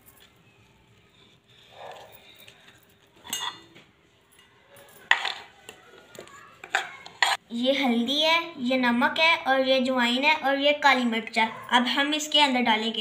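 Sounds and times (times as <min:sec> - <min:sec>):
knife and spoon clinking: 0:03.2 - 0:03.7, 0:06.6 - 0:07.4.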